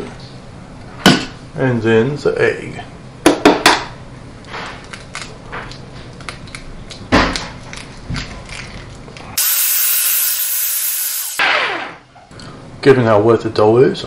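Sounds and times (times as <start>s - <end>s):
food processor whirring: 9.4s - 11.8s.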